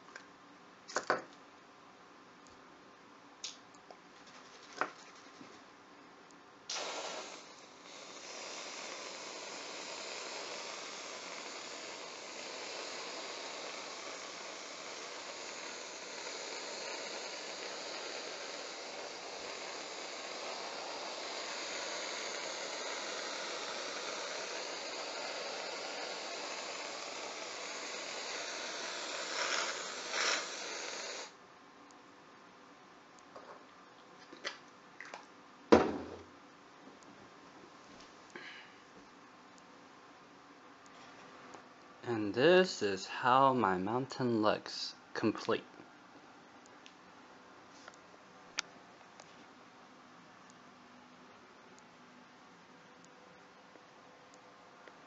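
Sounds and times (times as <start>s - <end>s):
whipped cream can spraying: 4.2s - 5.6s, 6.7s - 31.4s.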